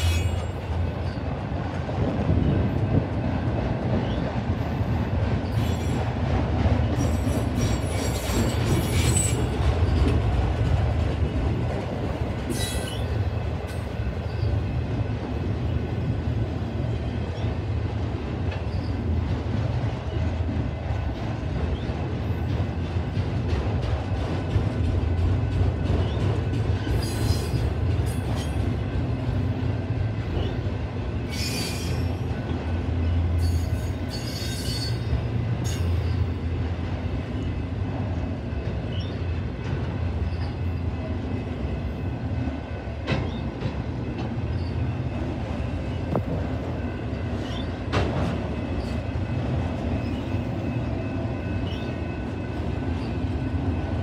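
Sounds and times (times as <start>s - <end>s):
freight train rumbling past: 0.0s - 54.0s
wheel squeals: 7.0s - 10.1s, 12.5s - 13.2s, 31.3s - 32.1s.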